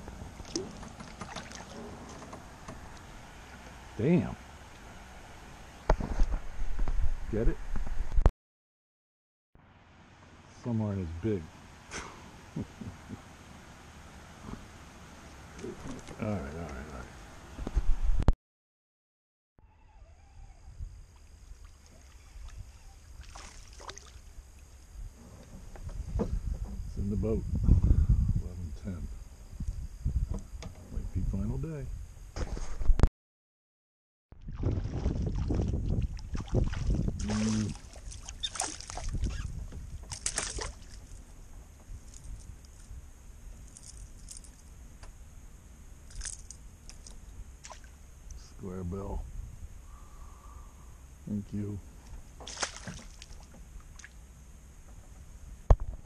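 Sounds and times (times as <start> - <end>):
knocks in canoe: 0.5 - 2.9
wind rumble on microphone: 5.8 - 8.3, 17.5 - 18.3, 24.9 - 33.1, 34.4 - 43.2, 48.3 - 51.6
fish splashing at surface: 23.2 - 24.2, 36.3 - 39.3, 40.1 - 41.0, 52.4 - 54.2.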